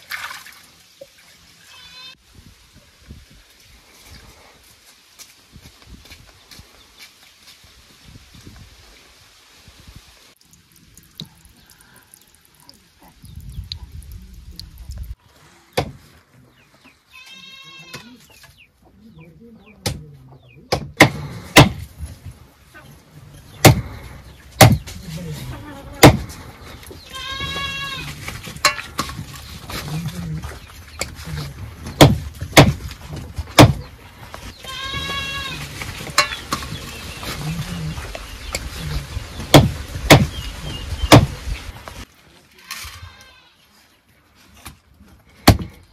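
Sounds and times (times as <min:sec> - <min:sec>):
goat bleating: 0:17.1 - 0:18.2, 0:25.3 - 0:26.1, 0:27.1 - 0:28.2, 0:34.6 - 0:35.7, 0:42.6 - 0:43.6
sharp knocks: 0:20.7 - 0:21.8, 0:32.0 - 0:32.9, 0:33.5 - 0:33.9, 0:39.5 - 0:40.4.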